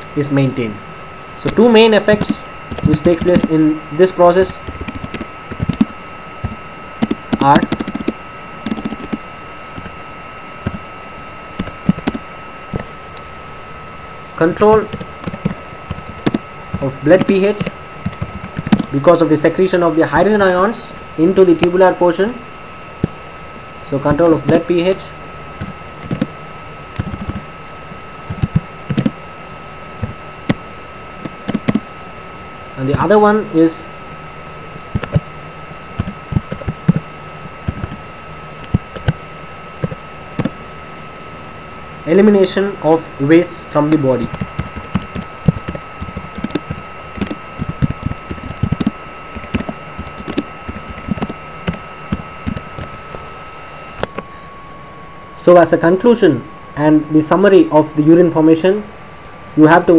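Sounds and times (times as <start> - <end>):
keyboard typing clicks: 2.2 - 3.6, 4.6 - 9.9, 11.6 - 12.2, 14.9 - 18.9, 25.6 - 26.3, 27.0 - 27.4, 28.3 - 29.2, 31.2 - 31.8, 34.9 - 35.2, 36.0 - 37.0, 37.6 - 38.0, 38.6 - 39.2, 39.8 - 40.6, 43.9 - 52.9.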